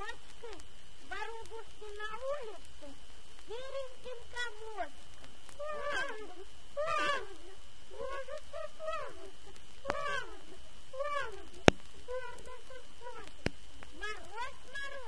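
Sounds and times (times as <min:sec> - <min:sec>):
child's high voice: 0:00.0 - 0:02.6, 0:03.5 - 0:04.9, 0:05.6 - 0:13.4
record hiss: 0:00.0 - 0:15.0.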